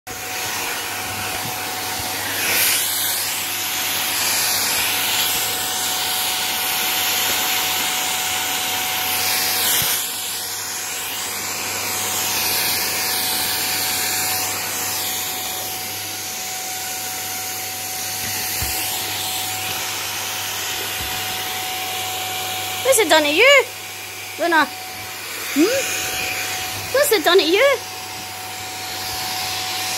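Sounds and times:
vacuum cleaner running: 0.1s - 29.9s.

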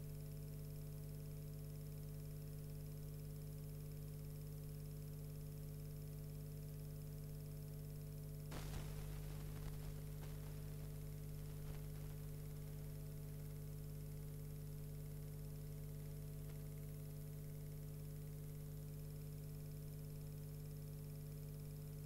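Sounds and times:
electrical mains hum: 0.0s - 22.0s
brief crackle: 8.5s - 13.3s
background hiss: 8.5s - 13.6s.

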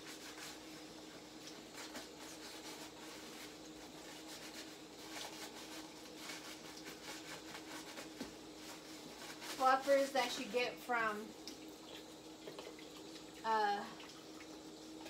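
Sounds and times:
pans being scrubbed by hand: 0.0s - 11.1s.

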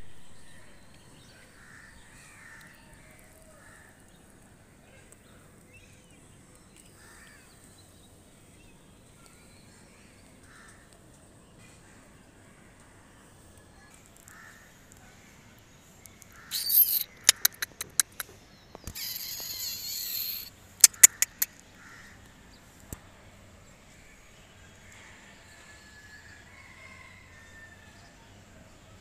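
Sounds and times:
crows cawing: 1.6s - 2.8s, 14.3s - 14.8s
sharp clicks: 16.0s - 21.6s.

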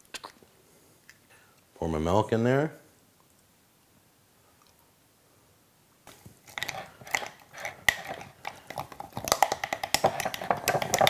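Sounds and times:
utensil scraping a glass jar: 6.5s - 11.0s.

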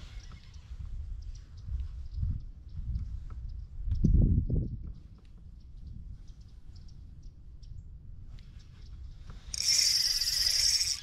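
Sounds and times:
fishing reel whirring: 9.5s - 11.0s.

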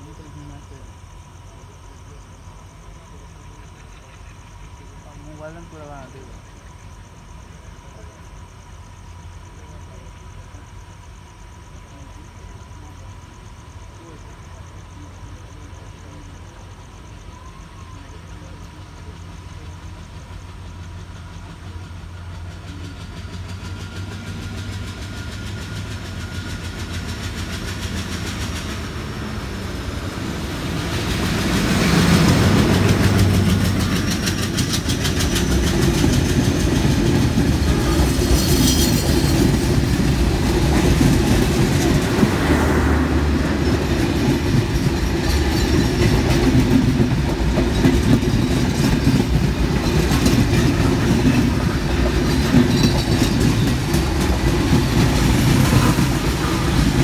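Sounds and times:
diesel locomotive engine passing: 0.0s - 57.0s
train wheels rattling on rails: 0.0s - 57.0s.

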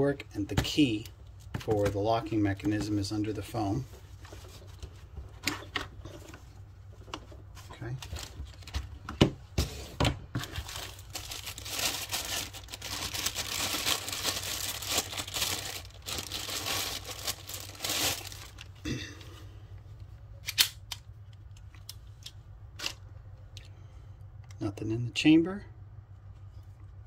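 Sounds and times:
plastic bag crinkling: 10.4s - 18.8s.

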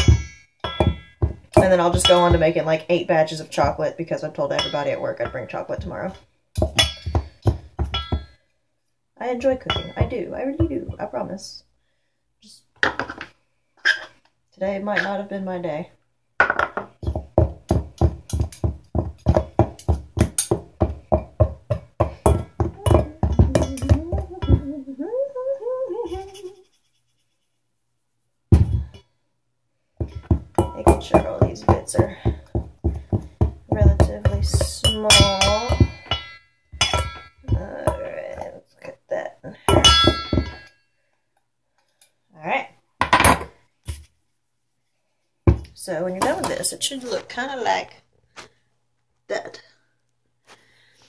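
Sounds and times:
knives clanking in steel pot: 0.0s - 2.6s, 4.4s - 5.9s, 6.6s - 8.3s, 9.6s - 10.2s, 33.8s - 38.2s, 39.7s - 40.8s.

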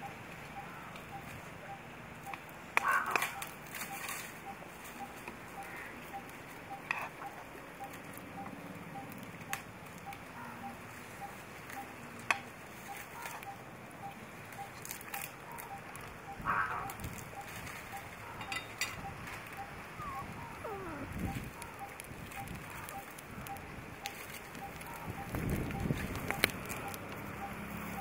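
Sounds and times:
fire popping: 0.0s - 28.0s
wood fire crackling: 0.0s - 28.0s
faint peep: 12.8s - 23.7s.

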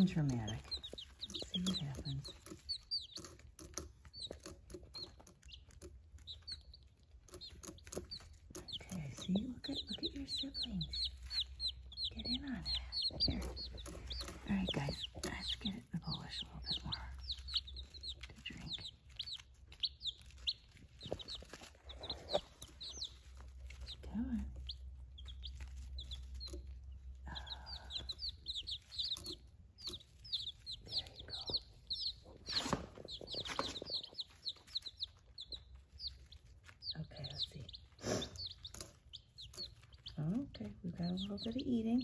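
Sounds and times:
baby chicks peeping: 0.0s - 42.0s.

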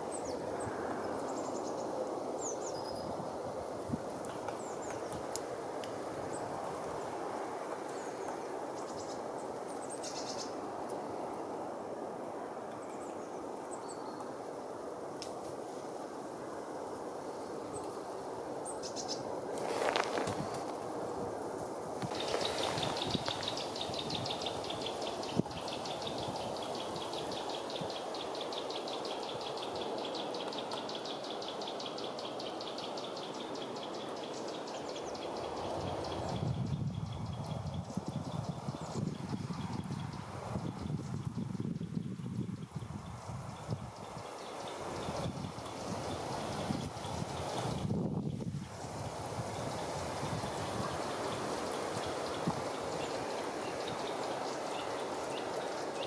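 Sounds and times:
outdoor hiss: 0.0s - 36.3s, 42.9s - 56.0s
small birds chirping: 7.9s - 10.6s, 22.1s - 48.7s, 49.6s - 56.0s.

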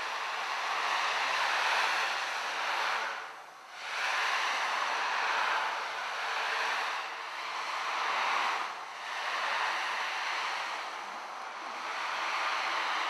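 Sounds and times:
rushing noise: 3.8s - 13.0s.

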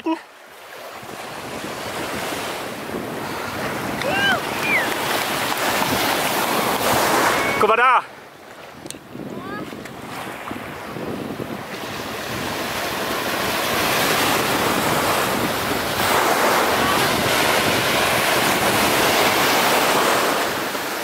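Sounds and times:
surf washing onto beach: 0.0s - 21.0s
wind on microphone: 0.9s - 7.6s, 8.3s - 21.0s.

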